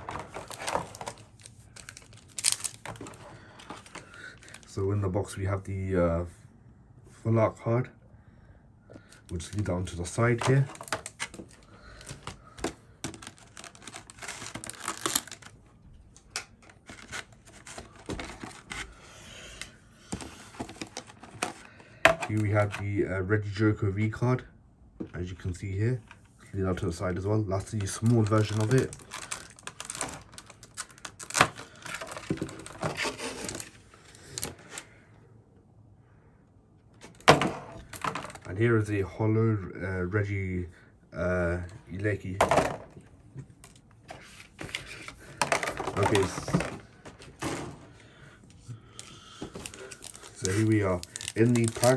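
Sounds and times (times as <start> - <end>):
plastic and foil packaging crinkling: 0.0 - 4.8, 9.3 - 22.7, 27.6 - 34.9, 43.6 - 47.3, 48.8 - 51.9
plastic tray crackling: 0.0 - 4.8, 9.3 - 15.6, 27.6 - 34.7, 43.6 - 47.7, 49.0 - 51.9.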